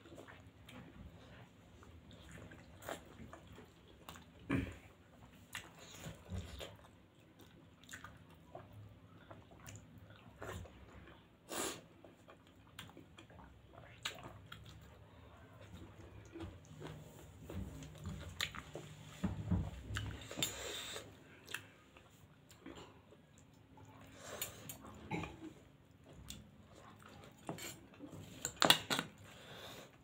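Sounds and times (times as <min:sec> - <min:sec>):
wet chewing and smacking: 0:00.0 - 0:20.6.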